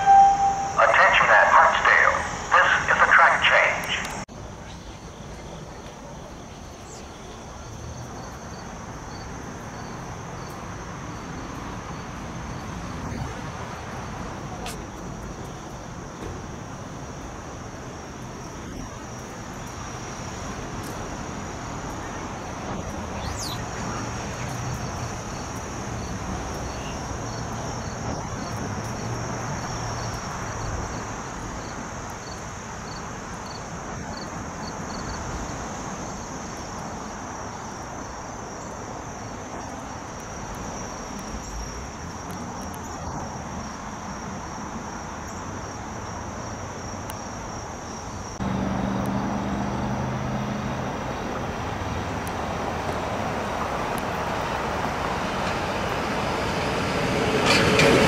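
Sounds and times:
electric train approaching: 0.0s - 4.2s, 52.6s - 58.0s
insects trilling: 0.0s - 56.3s
distant traffic hum: 0.0s - 58.0s.

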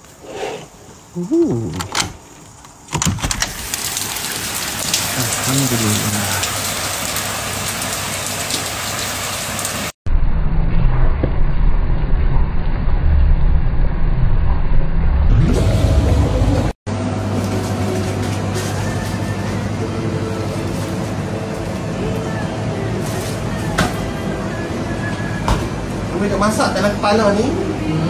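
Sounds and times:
heavy rain falling: 3.4s - 9.9s
water boiling in a pot: 3.6s - 10.0s.

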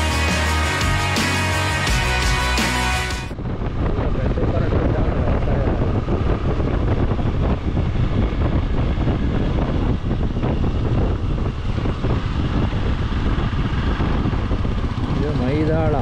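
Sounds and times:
motorcycle engine rumble: 3.2s - 16.0s
wind buffeting microphone: 3.3s - 16.0s.

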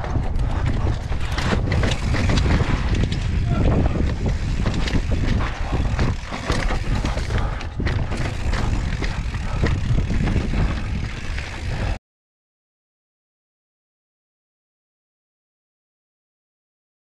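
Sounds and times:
bike tyres knocking and rattling: 0.0s - 12.0s
wind rumbling on microphone: 0.0s - 12.0s.

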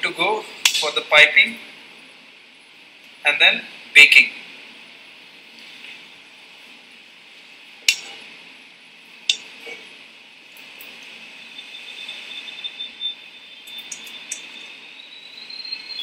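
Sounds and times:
faint steady high tone: 11.2s - 16.0s.

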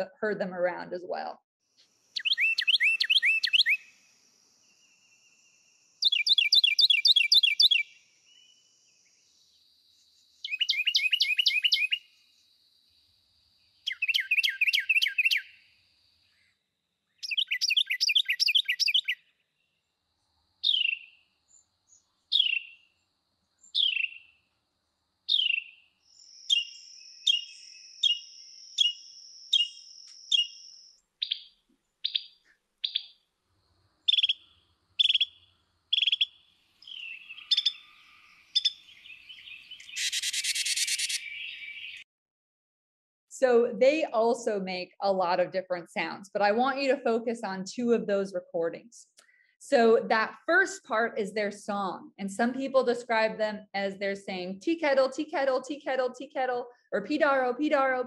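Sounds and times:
short down-slurred bird calls: 2.2s - 4.0s, 6.0s - 8.6s, 10.4s - 12.2s, 13.8s - 15.7s, 17.1s - 19.4s, 20.6s - 22.9s, 23.6s - 24.4s, 25.3s - 33.2s, 34.1s - 42.0s
bird harsh chattering: 10.5s - 12.0s, 13.9s - 15.5s, 17.2s - 19.2s, 34.1s - 37.9s, 38.6s - 42.0s.

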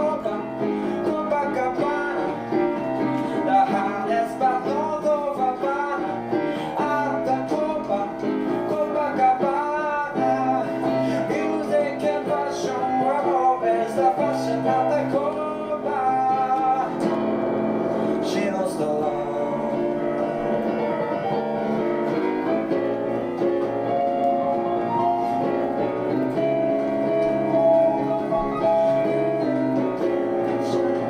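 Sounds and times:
piano music: 0.0s - 31.0s.

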